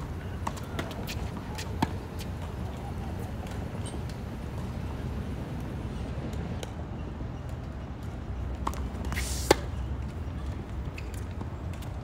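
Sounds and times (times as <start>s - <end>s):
short hiss: 9.2s - 9.6s.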